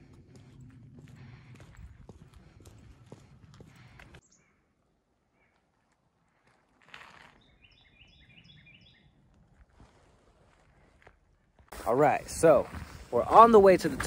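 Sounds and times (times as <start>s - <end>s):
small songbird singing: 7.4s - 9.2s.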